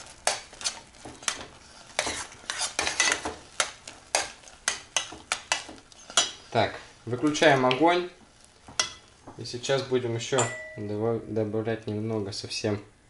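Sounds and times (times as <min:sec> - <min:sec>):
metal spoon scraping pot: 0:00.2 - 0:03.3.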